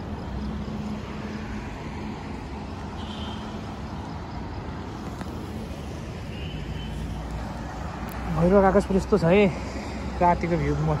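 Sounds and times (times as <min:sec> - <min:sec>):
road traffic hum: 0:00.0 - 0:11.0.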